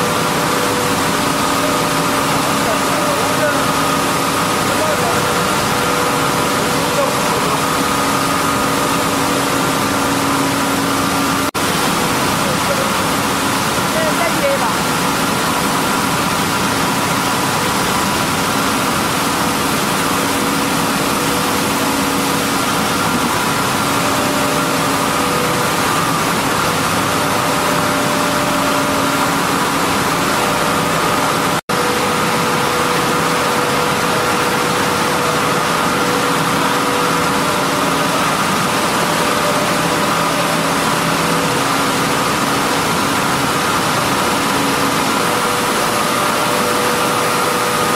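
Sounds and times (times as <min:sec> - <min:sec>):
processing machinery drone: 0:00.0 - 0:47.9.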